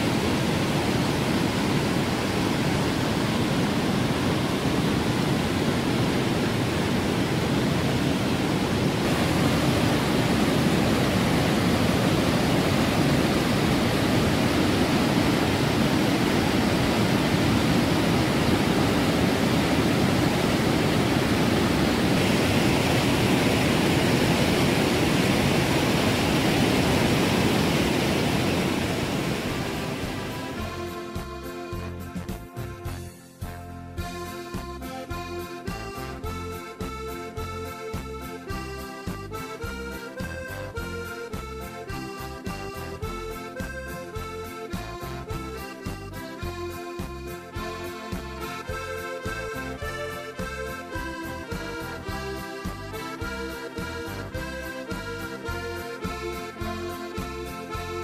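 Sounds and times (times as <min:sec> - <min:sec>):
waterfall rushing over boulders: 0:00.0 - 0:31.0.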